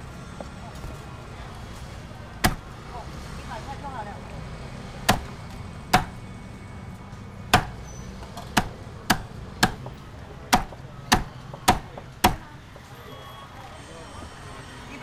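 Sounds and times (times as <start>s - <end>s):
cleaver chopping on cutting board: 5.1s - 5.3s, 6.0s - 6.2s, 7.6s - 7.8s, 8.5s - 9.9s, 10.5s - 12.4s.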